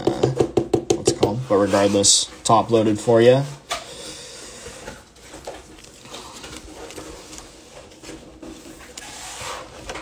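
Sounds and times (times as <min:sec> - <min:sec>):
plastic rustling: 0:04.6 - 0:10.0.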